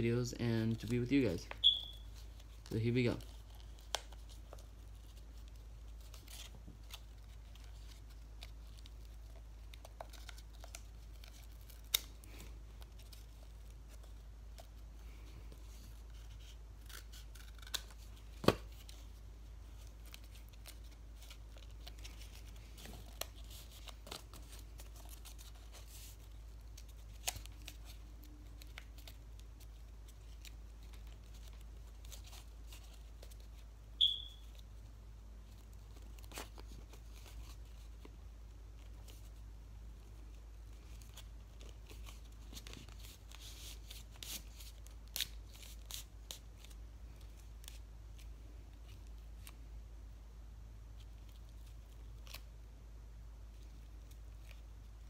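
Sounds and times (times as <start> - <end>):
paper handling: 0.7 - 34.8, 35.4 - 39.4, 40.0 - 49.6
scissors snipping paper: 16.8 - 18.6.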